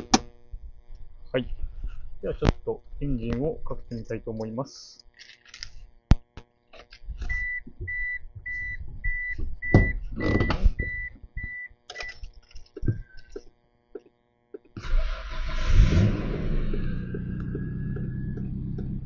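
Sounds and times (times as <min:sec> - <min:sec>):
short low beep: 0:07.3 - 0:11.7.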